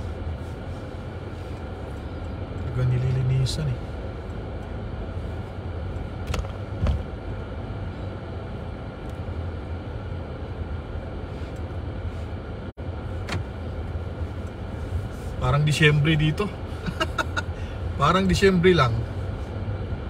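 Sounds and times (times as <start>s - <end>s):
car engine and tyres rumbling: 0.0s - 20.0s.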